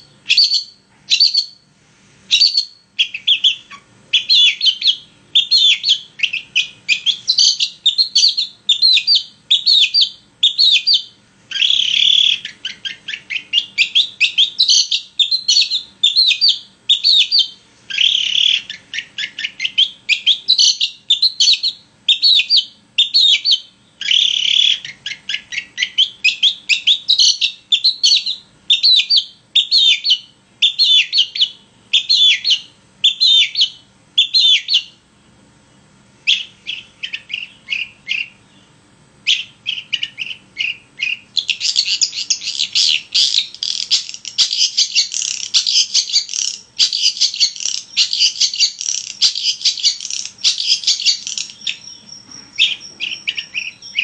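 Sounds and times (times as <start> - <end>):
bird chirping: 0.0 - 1.7, 2.3 - 54.0
harsh bird call: 0.0 - 1.7, 2.3 - 35.0, 36.2 - 54.0.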